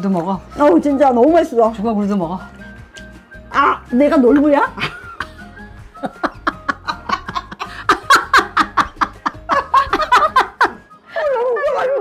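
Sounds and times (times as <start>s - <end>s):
women laughing: 4.8s - 12.0s.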